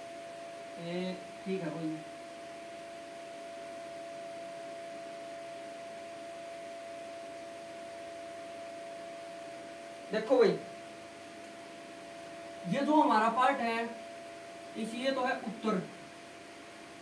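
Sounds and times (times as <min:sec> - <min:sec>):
steady humming tone: 0:00.0 - 0:17.0.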